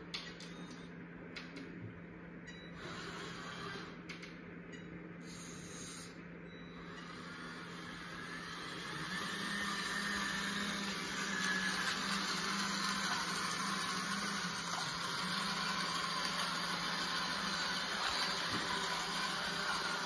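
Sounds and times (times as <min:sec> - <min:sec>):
small electric motor whirring: 0:06.8 - 0:20.0.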